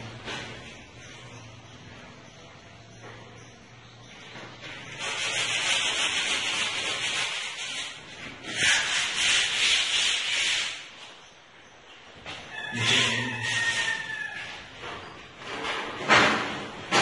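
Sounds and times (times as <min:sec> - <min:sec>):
hand tool scraping a painted wall: 0:04.6 - 0:11.3, 0:12.7 - 0:17.0.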